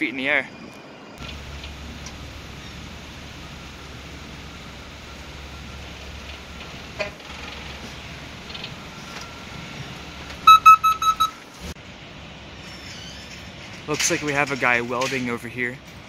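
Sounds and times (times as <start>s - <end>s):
outdoor background hum: 0.0s - 16.0s
rapid high electronic beeps: 10.4s - 11.4s.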